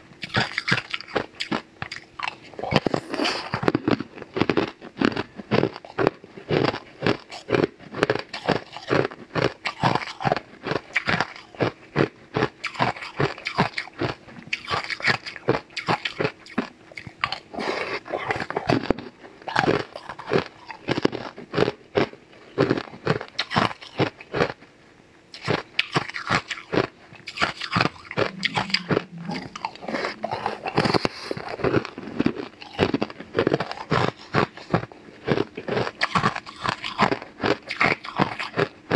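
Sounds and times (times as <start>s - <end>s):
crunching and chewing ice: 0.2s - 24.7s, 25.3s - 38.9s.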